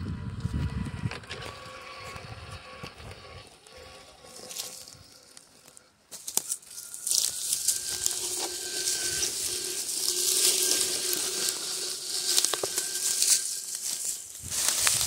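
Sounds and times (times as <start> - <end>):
electric motor whine: 0.0 - 15.0
crunching of pine needles and twigs: 1.0 - 15.0
twigs snapping: 6.2 - 15.0.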